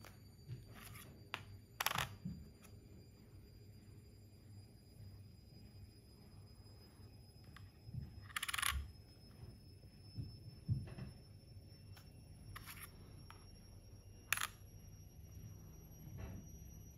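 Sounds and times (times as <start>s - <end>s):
coin clicking on metal scale: 14.3s - 14.6s.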